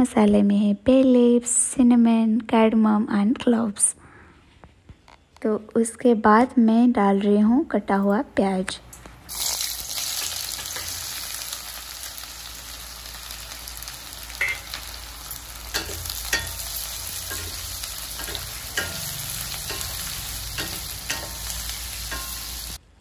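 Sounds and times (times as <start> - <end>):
onions sizzling in oil: 9.3 - 22.8
utensil scraping pan: 15.7 - 22.8.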